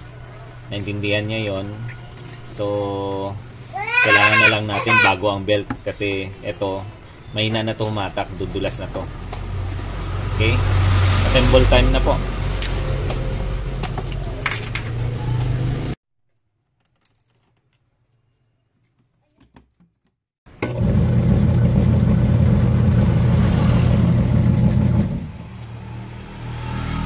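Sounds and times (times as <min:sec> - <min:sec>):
clicks and clatter of parts handled: 0:16.8 - 0:17.9
washing machine motor humming: 0:20.6 - 0:23.4.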